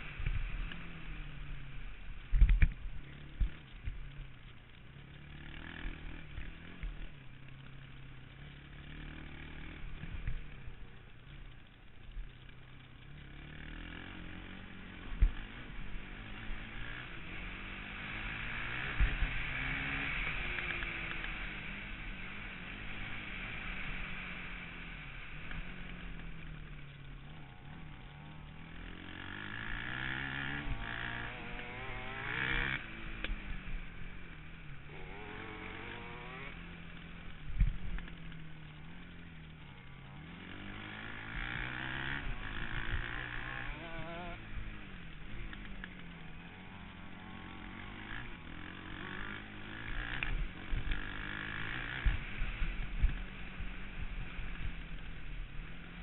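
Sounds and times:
quad engine revving: 0:05.1 - 0:07.7, 0:13.0 - 0:37.2, 0:37.8 - 0:53.2.

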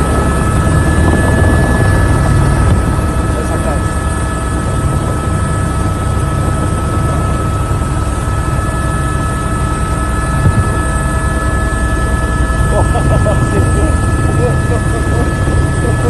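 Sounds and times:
helicopter rotor beat: 0:00.0 - 0:16.0
high turbine whine: 0:00.0 - 0:16.0.

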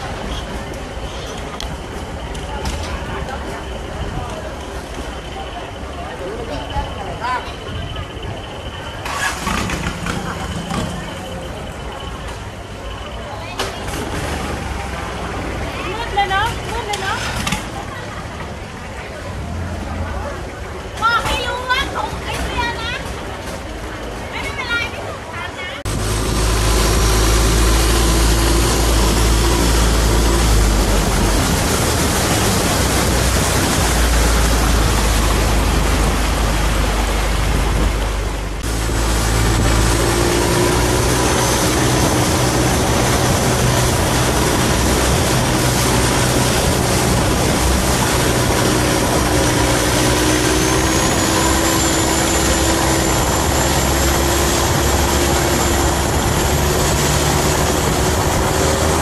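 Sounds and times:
rushing water: 0:00.0 - 0:59.0
boat engine running: 0:25.8 - 0:59.0.

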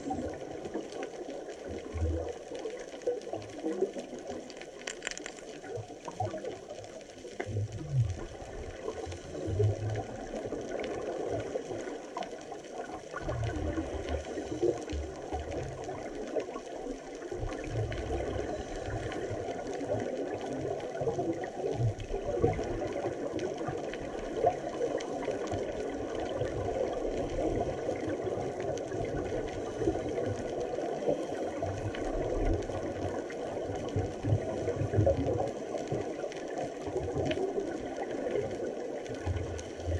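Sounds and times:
underwater crackling hiss: 0:00.0 - 0:39.9
low underwater rumbles and thuds: 0:04.4 - 0:11.9.

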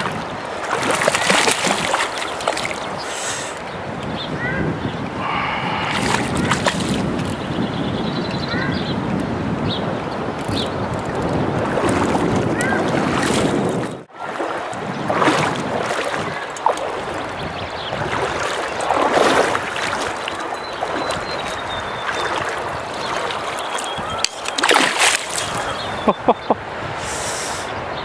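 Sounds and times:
water splashing: 0:00.0 - 0:03.7, 0:05.2 - 0:07.5, 0:10.4 - 0:27.7
stream water over stones: 0:00.0 - 0:03.8, 0:05.2 - 0:07.4, 0:10.5 - 0:26.2.

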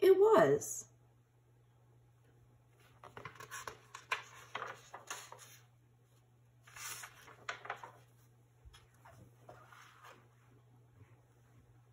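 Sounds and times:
paper pages rustling: 0:02.8 - 0:10.6
page turning swish: 0:03.0 - 0:05.6, 0:06.7 - 0:08.1.

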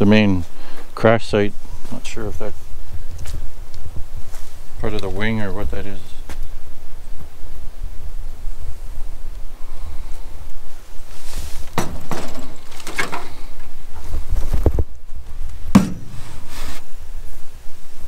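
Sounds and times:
footsteps crunching undergrowth: 0:11.0 - 0:16.9.

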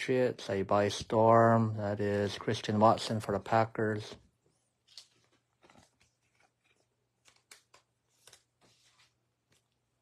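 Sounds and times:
trading cards clicking and rustling: 0:04.9 - 0:09.6.

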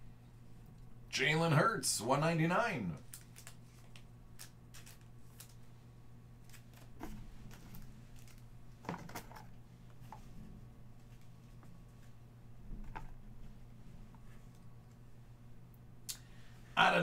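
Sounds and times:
steady low hum: 0:00.0 - 0:17.0
trading cards rustling: 0:03.0 - 0:05.7, 0:06.4 - 0:09.5.

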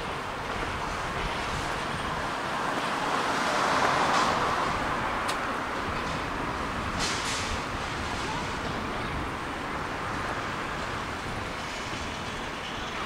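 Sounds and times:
bus road and engine noise: 0:00.0 - 0:13.0.

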